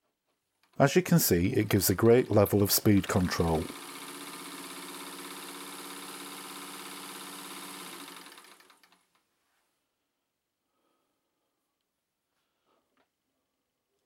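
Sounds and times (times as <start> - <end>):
sewing machine motor humming: 1.4 - 9.2.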